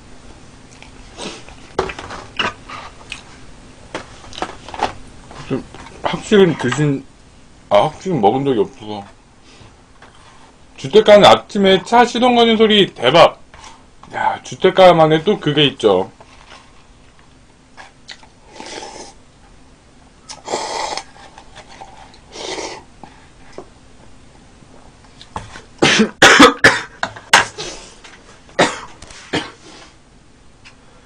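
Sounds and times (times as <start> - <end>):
man coughing hard: 25.8 - 27.6, 28.6 - 29.6.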